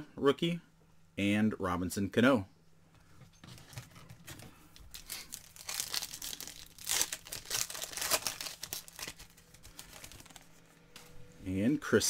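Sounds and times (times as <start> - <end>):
foil wrapper crinkling and tearing: 4.7 - 10.5.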